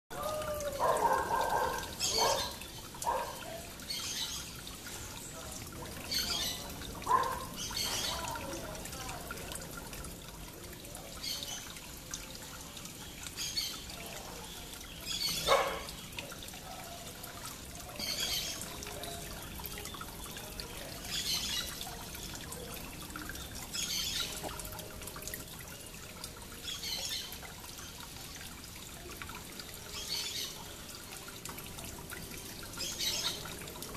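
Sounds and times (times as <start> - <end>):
small birds chirping: 0.3 - 9.2, 12.6 - 24.8.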